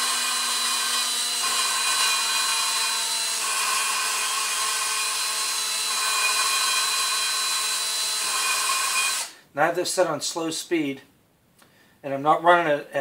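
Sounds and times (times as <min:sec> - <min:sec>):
cordless drill motor whine: 0:00.0 - 0:09.4.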